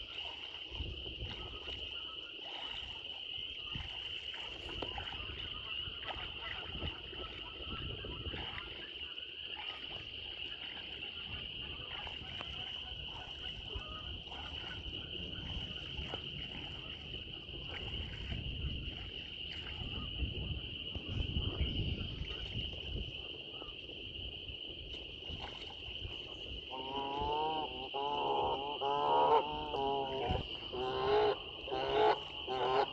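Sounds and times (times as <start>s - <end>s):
geese splashing water: 0.0s - 23.7s, 25.2s - 32.9s
chorus of frogs: 0.0s - 32.9s
loud wavering calls: 26.7s - 32.9s.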